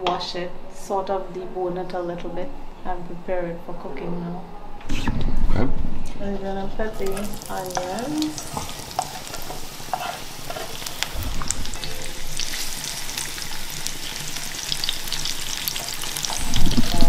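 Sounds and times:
onions sizzling in hot oil: 7.0 - 17.0.

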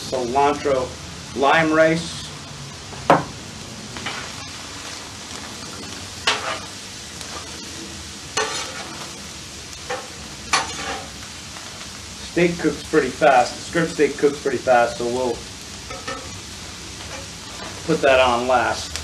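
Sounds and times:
vegetables sizzling on a griddle: 0.0 - 19.0
metal spatulas scraping: 6.2 - 6.7, 8.4 - 9.0, 9.9 - 11.1.

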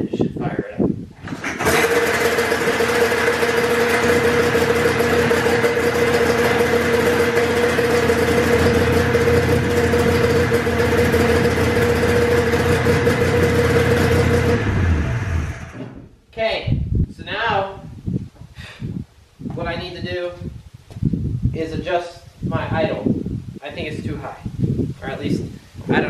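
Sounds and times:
snowmobile engine idling: 1.6 - 15.9.

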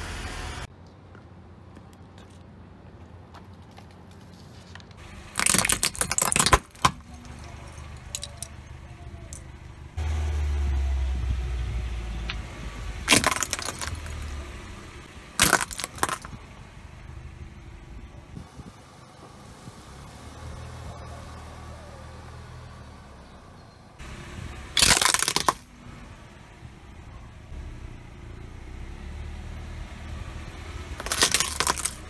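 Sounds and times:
car engine low rumble: 0.0 - 3.2, 5.0 - 32.0
tyre crushing crackling ornaments: 4.9 - 9.5, 13.0 - 14.5, 15.4 - 16.4, 24.8 - 25.7, 30.9 - 32.0.

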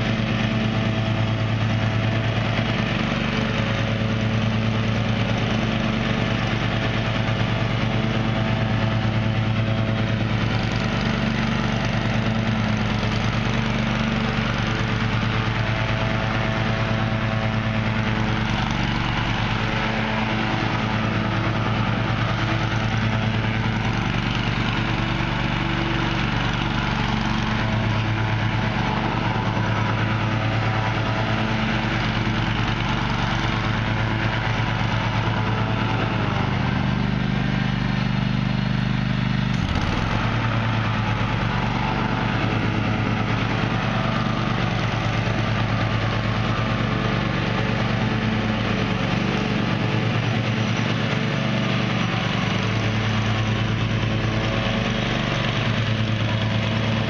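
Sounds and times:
riding mower engine running: 0.0 - 57.0
short engine knock: 39.5 - 41.2.

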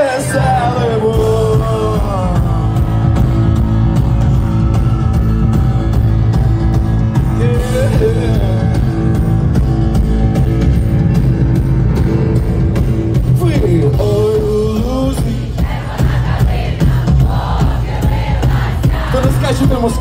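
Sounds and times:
person singing: 0.0 - 3.3, 7.3 - 9.2, 13.4 - 15.7
live band playing: 0.0 - 20.0
drum beat: 1.1 - 20.0.

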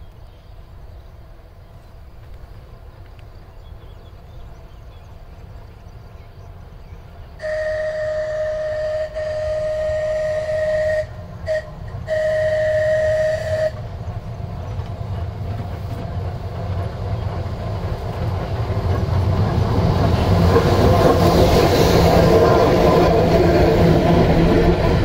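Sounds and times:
train rumbling past: 0.0 - 25.0
locomotive horn: 7.4 - 13.9.

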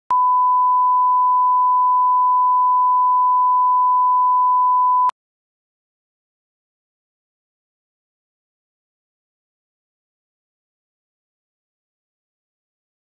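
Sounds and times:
steady pure test tone beep: 0.1 - 5.1.

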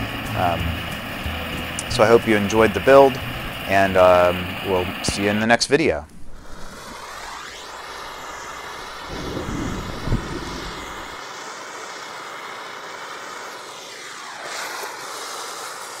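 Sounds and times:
low rumble: 0.0 - 3.7, 6.1 - 11.2
gas torch flame hissing: 0.0 - 16.0.

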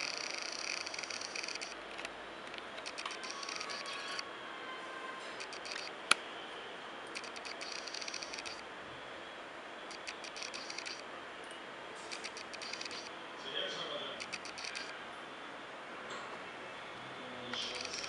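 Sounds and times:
rapid fine ticking: 0.0 - 1.8, 7.2 - 8.6, 9.9 - 11.0, 12.2 - 13.1
computer mouse click: 0.0 - 4.2, 5.4 - 6.2, 7.1 - 8.6, 9.9 - 11.0, 12.1 - 13.1, 14.2 - 14.9, 17.5 - 18.0.

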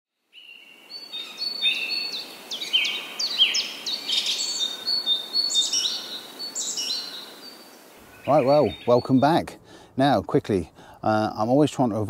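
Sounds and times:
birds chirping and singing: 0.4 - 10.0.

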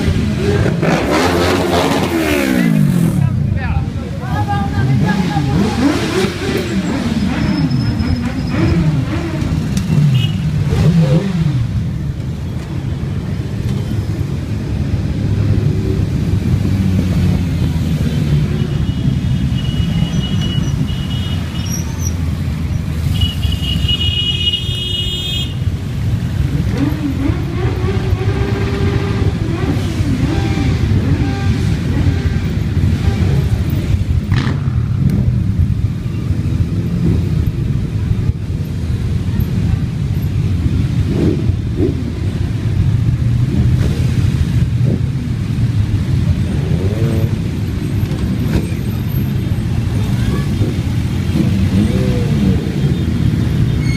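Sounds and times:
motorcycle engine revving: 0.0 - 3.3, 4.8 - 12.0, 26.0 - 35.8, 40.4 - 53.9
motorcycle engines rumbling: 0.0 - 53.9.

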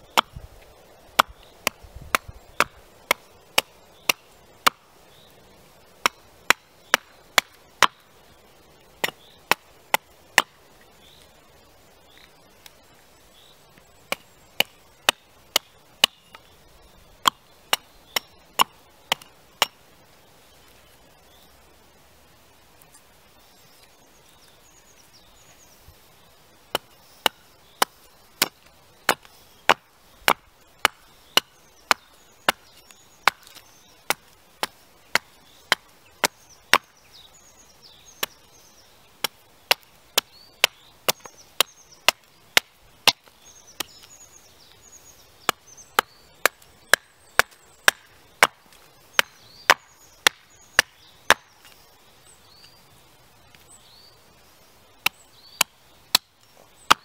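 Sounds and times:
axe chopping wood: 0.1 - 0.4, 1.1 - 4.8, 6.0 - 8.0, 9.0 - 10.6, 14.1 - 16.5, 17.2 - 19.8, 26.7 - 36.9, 39.2 - 44.1, 45.4 - 51.6, 55.0 - 57.0.

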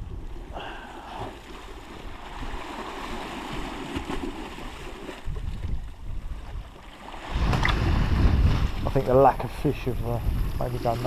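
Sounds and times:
sea washing against wall: 6.6 - 11.0.

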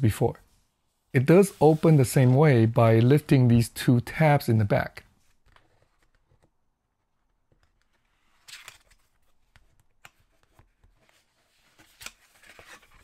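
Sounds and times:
cardboard scraping: 1.3 - 2.6.

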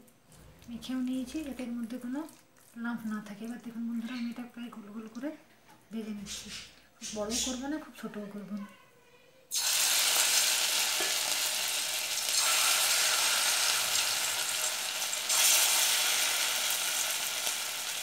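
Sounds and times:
batter sizzling in hot oil: 9.5 - 18.0.

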